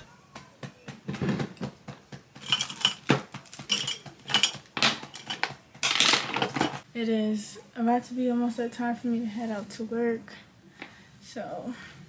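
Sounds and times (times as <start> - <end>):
small hard objects clinking: 2.4 - 6.8.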